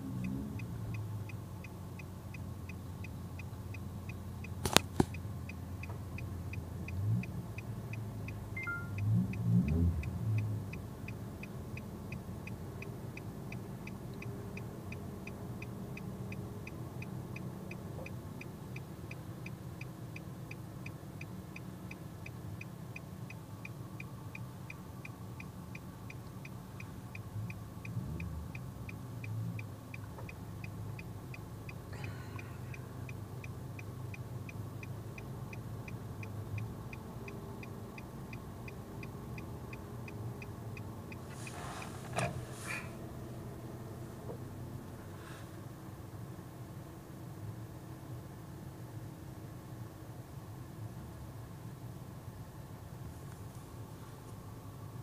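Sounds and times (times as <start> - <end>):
car engine idling: 10.0 - 47.3.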